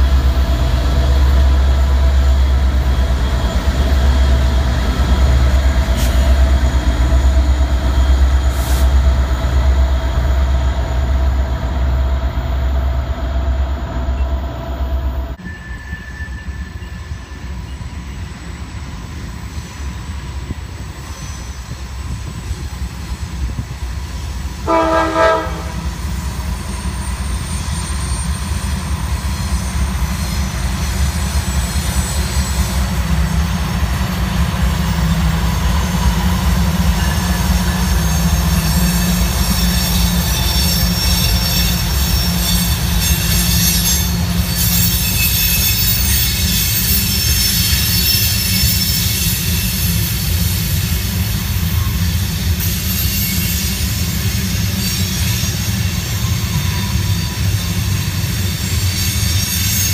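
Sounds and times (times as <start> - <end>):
freight train rumble: 0.0 - 59.9
train horn blast: 24.6 - 26.0
wheel squeal: 25.9 - 59.9.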